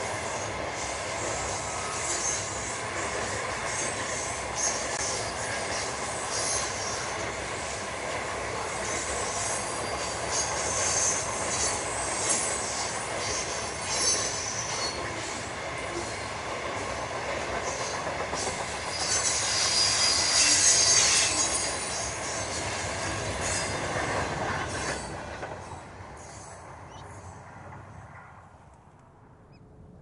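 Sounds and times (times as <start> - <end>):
wheels clacking on rails: 0.0 - 28.9
train wheels rumbling on track: 0.0 - 29.4
high-pitched wheel squeal: 13.3 - 15.0, 18.9 - 22.4.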